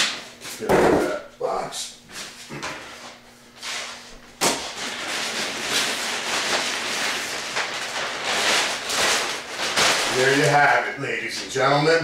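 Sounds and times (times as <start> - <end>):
plastic bag rustling and crinkling: 3.6 - 11.9.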